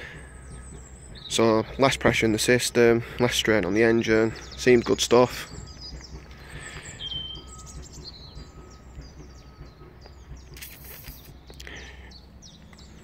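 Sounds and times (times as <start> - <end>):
small birds chirping: 0.0 - 13.0
short hiss: 10.5 - 11.4.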